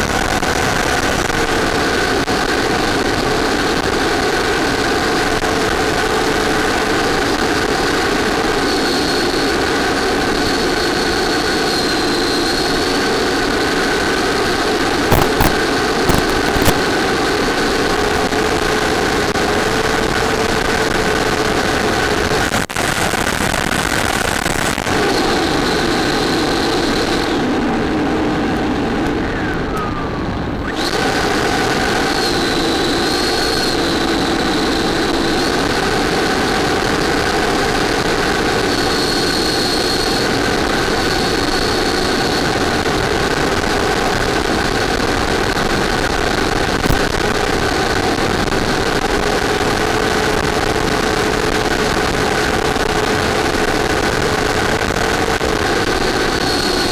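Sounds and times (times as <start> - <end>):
model airplane motor whine: 5.8 - 21.1, 24.9 - 46.7, 55.7 - 56.9.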